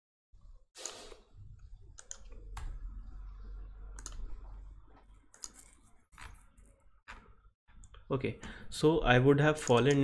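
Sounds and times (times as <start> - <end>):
faint low hum: 1.4 - 5.8
keyboard and mouse clicking: 1.9 - 2.8, 4.0 - 4.3, 5.3 - 6.4, 9.6 - 10.0.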